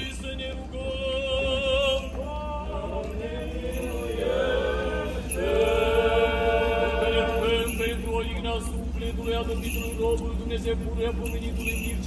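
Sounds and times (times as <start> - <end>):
voices chanting long held notes: 2.2 - 7.9.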